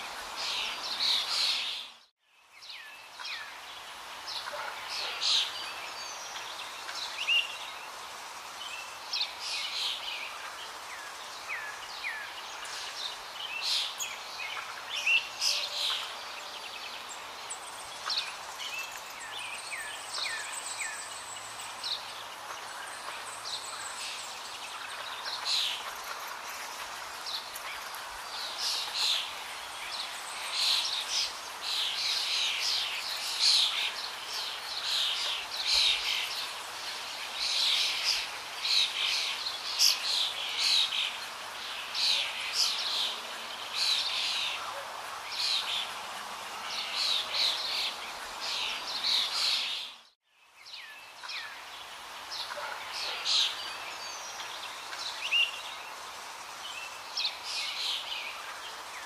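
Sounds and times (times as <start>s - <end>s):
birds chirping: 0.0s - 59.0s
steady background hiss: 0.0s - 59.0s.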